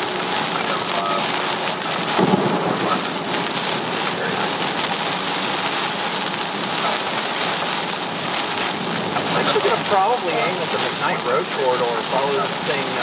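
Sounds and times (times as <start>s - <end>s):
heavy rain on car roof: 0.0s - 13.0s.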